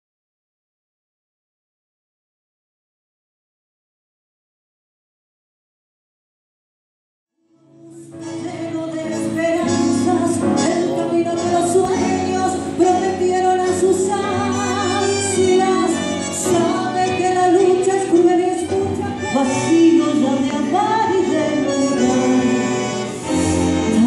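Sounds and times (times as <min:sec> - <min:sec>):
woman singing tango: 0:07.5 - 0:24.0
tango band playing: 0:08.0 - 0:24.0.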